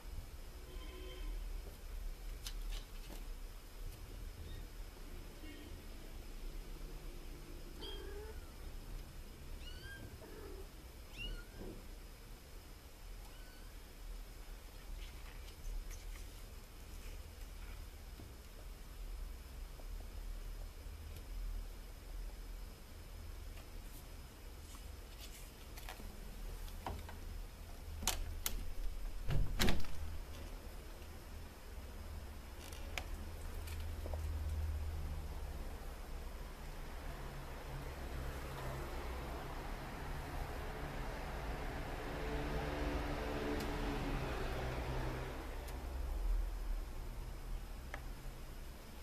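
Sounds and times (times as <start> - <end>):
kitten mewing: 7.8 - 8.6.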